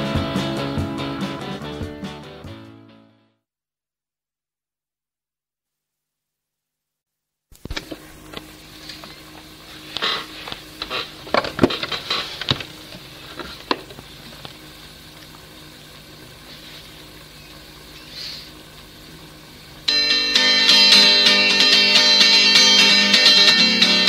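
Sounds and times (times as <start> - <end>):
low electrical hum: 7.5 - 24.0
tape hiss: 7.5 - 24.0.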